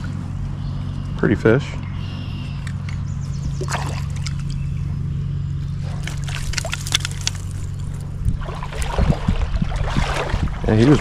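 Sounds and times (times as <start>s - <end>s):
water splashing and sloshing: 2.6s - 4.6s, 5.6s - 11.0s
flowing stream water rumble: 2.6s - 11.0s.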